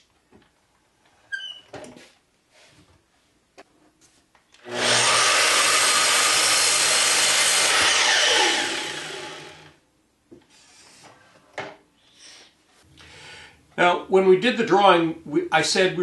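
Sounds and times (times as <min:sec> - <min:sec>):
miter saw cutting wood: 0:04.6 - 0:09.8.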